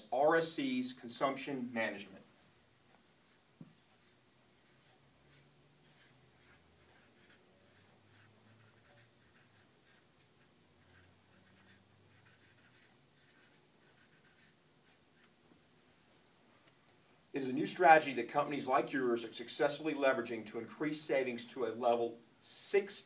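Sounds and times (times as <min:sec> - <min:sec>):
faint low hum: 0:00.0 - 0:22.4
pen scratching on paper: 0:03.2 - 0:15.3.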